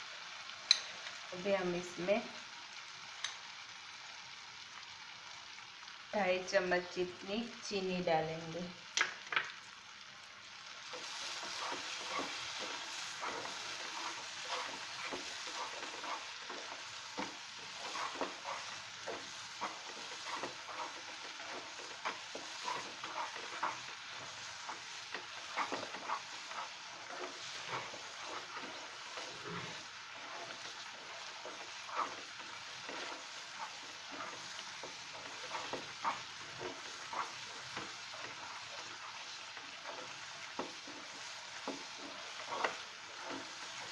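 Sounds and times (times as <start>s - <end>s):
mixture sizzling in a frying pan: 0.0s - 43.9s
spatula stirring and scraping: 10.8s - 43.9s.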